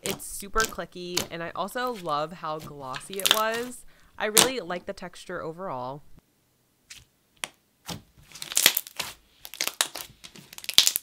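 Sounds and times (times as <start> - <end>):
slime clicking and popping: 8.4 - 11.0.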